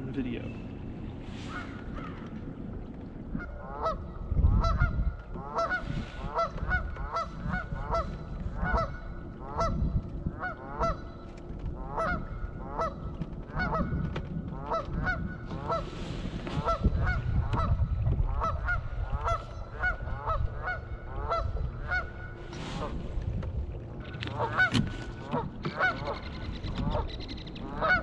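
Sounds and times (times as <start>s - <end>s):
wind rumble on microphone: 0.0s - 28.0s
geese honking: 4.6s - 9.8s, 11.8s - 13.9s, 14.6s - 15.9s, 16.5s - 22.9s, 24.3s - 28.0s.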